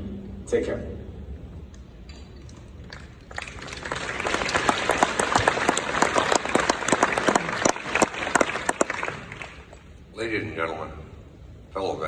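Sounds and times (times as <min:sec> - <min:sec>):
audience applauding: 0:02.9 - 0:09.9.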